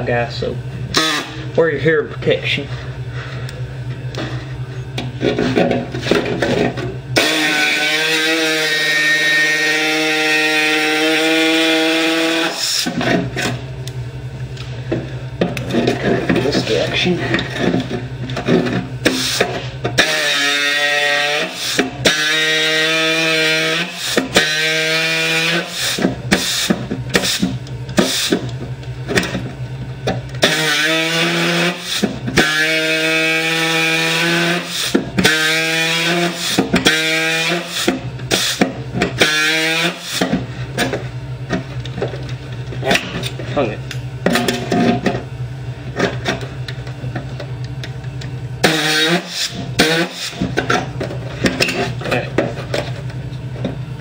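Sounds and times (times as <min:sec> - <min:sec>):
air saw cutting sheet metal: 0:00.9 - 0:01.4, 0:07.2 - 0:13.6, 0:18.5 - 0:28.4, 0:30.4 - 0:40.4, 0:48.6 - 0:50.8.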